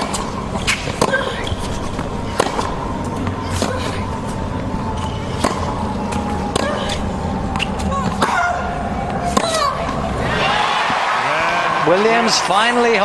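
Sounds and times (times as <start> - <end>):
tennis ball struck by racquets: 0.0 - 2.8, 5.0 - 7.0
stadium crowd ambience: 8.0 - 13.0.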